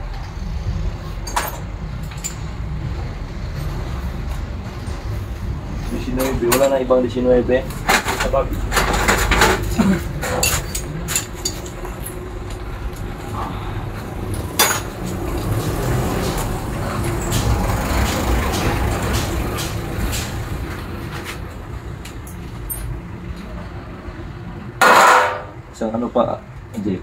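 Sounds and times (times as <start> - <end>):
heavy vehicle engine running: 0.0 - 25.5
metallic clicks of handled parts: 9.3 - 13.1.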